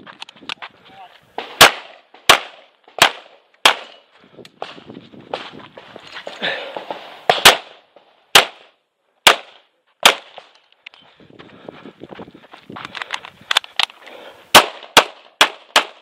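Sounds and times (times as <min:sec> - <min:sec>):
pistol shots: 0:01.4 - 0:04.0, 0:06.8 - 0:10.5, 0:14.5 - 0:16.0.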